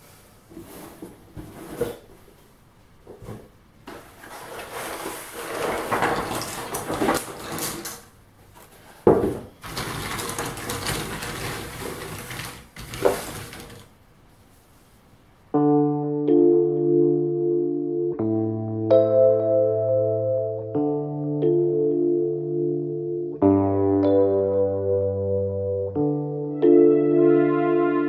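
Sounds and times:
puzzle pieces rustling and clattering: 4.0 - 8.0, 9.6 - 14.0
keyboard music with held notes: 15.6 - 28.0.

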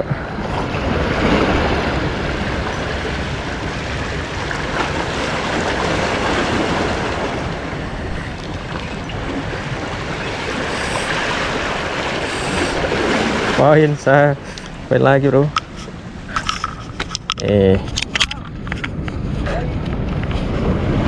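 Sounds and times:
waves washing against rocks: 0.0 - 15.7
wind buffeting microphone: 0.0 - 21.0.

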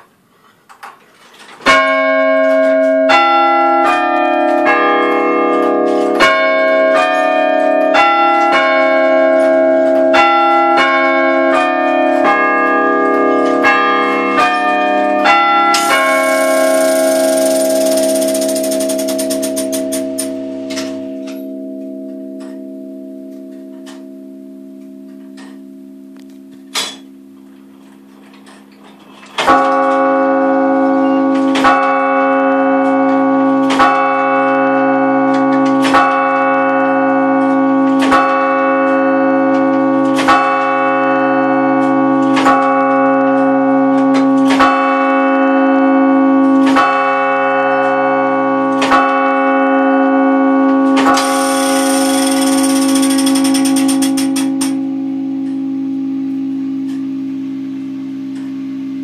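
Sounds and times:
clock bell striking: 1.7 - 28.1, 29.4 - 57.0
chime note ringing: 15.1 - 26.3, 51.1 - 55.0
clock mechanism click: 15.7 - 20.9, 51.1 - 54.8
high hiss: 15.8 - 19.3.

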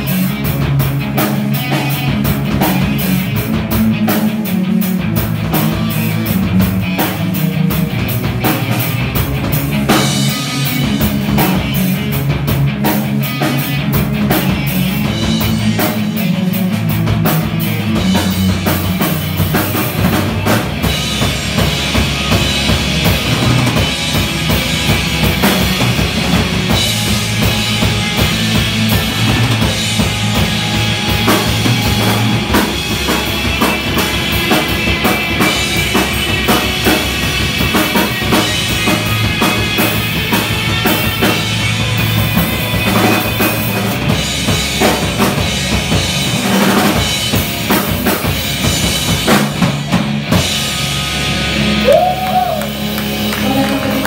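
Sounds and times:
heavy bass line: 0.0 - 54.0
live rock band playing: 0.0 - 54.0
drum hits: 17.4 - 50.7.

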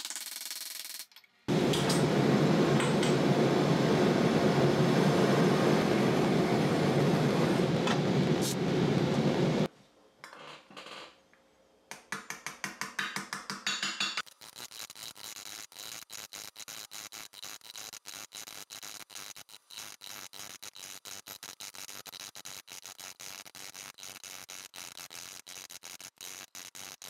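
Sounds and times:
gas torch flame: 1.5 - 9.7.

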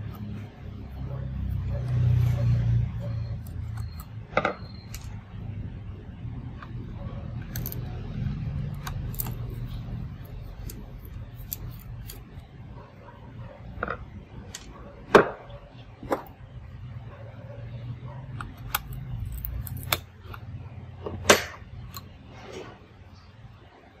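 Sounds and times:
small parts being handled: 6.6 - 12.4.

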